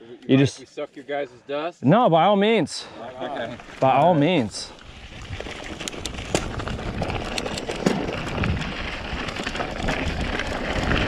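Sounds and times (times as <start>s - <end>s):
bike tyres on dirt: 3.0s - 11.0s
bike clicks and rattles: 5.0s - 11.0s.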